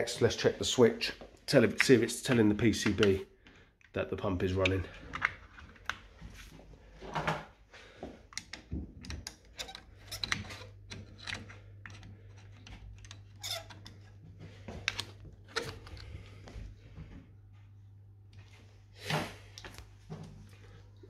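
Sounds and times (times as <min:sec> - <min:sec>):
screwdriver and parts clicking: 0:08.3 - 0:14.0.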